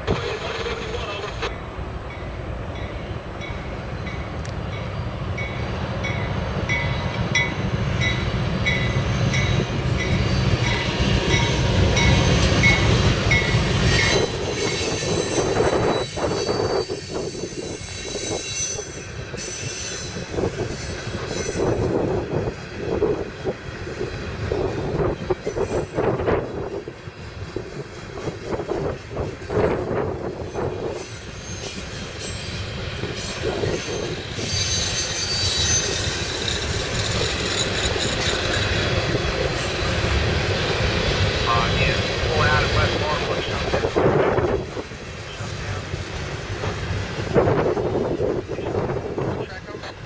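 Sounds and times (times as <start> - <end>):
diesel locomotive engine rumbling: 0.0 - 50.0
train cars clanking: 0.0 - 50.0
wheel squeal: 13.7 - 21.8, 31.0 - 38.9.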